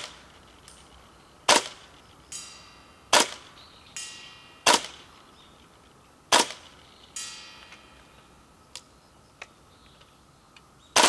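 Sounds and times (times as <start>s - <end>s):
airsoft rifle shots: 0.0s - 0.4s, 1.4s - 2.0s, 3.1s - 3.6s, 4.6s - 5.1s, 6.3s - 6.8s
metal target ringing: 1.5s - 5.6s, 6.3s - 8.5s.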